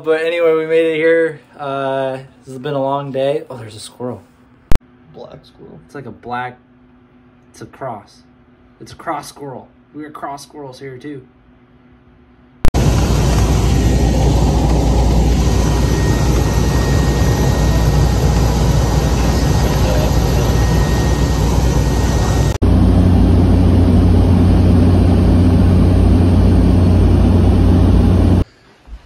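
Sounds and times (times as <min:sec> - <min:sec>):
propeller plane engine drone: 0:12.7 - 0:28.5.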